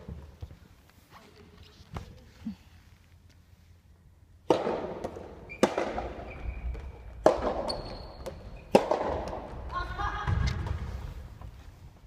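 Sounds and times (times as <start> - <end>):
rackets hitting rubber ball: 4.4 - 11.0.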